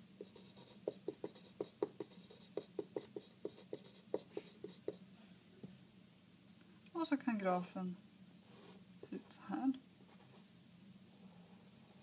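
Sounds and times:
pen scratching on paper: 0.2s - 5.0s.

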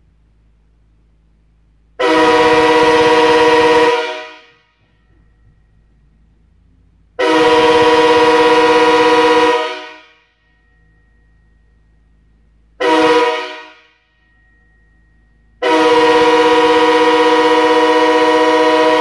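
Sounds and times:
locomotive air horn blasts: 2.0s - 5.9s, 7.1s - 10.4s, 12.8s - 14.2s, 15.6s - 19.0s.

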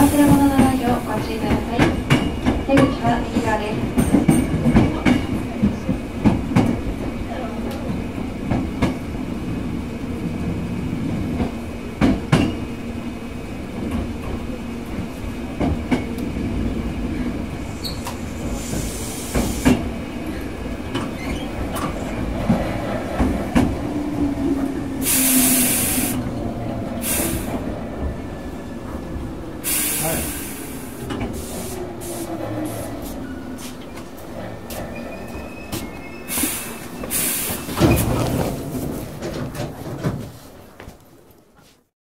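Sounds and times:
train rumble and hum: 0.0s - 41.9s
brakes hissing air: 24.9s - 26.2s, 27.0s - 27.7s, 29.6s - 33.8s, 36.3s - 37.8s.

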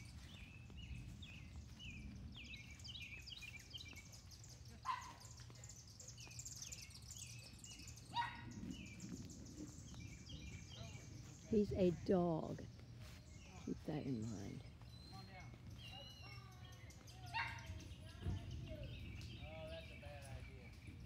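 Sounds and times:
birds chirping: 0.0s - 21.0s
faint dog barking: 4.8s - 5.4s, 8.1s - 8.7s, 17.3s - 17.8s.

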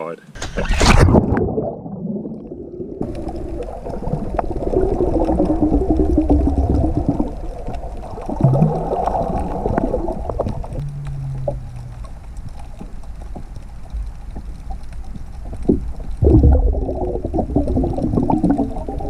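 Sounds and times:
underwater water movement and bubbles: 0.3s - 19.0s
steady low hum: 3.0s - 19.0s
wavering low tone: 9.5s - 12.4s.

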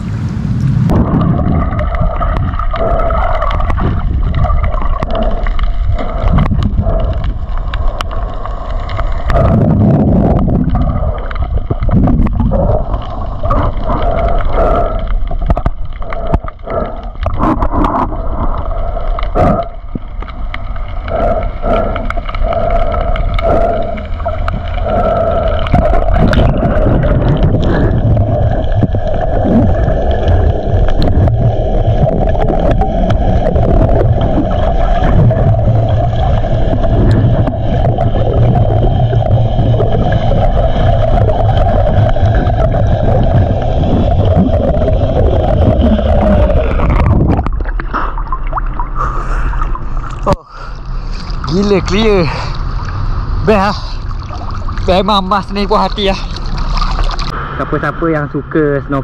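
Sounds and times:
underwater rumble of moving water: 0.0s - 59.0s
water gurgling and sloshing: 0.0s - 59.0s.

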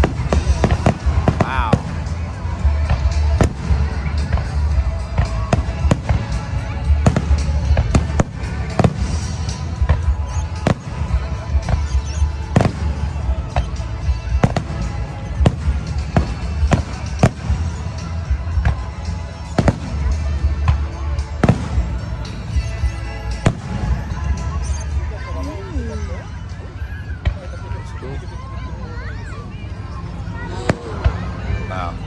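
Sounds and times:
fireworks bursting with sharp bangs: 0.0s - 25.1s
music with heavy bass: 0.0s - 26.8s.

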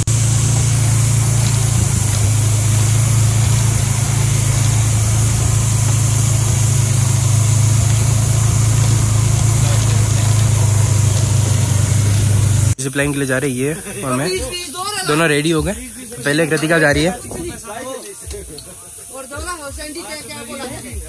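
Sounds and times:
atv engine running: 0.0s - 12.8s.

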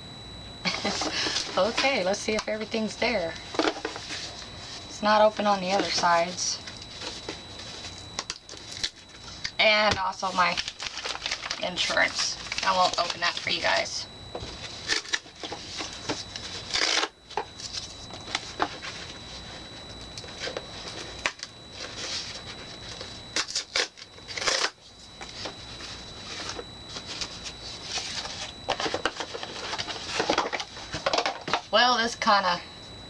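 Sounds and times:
paper packaging rustling: 10.5s - 13.5s.

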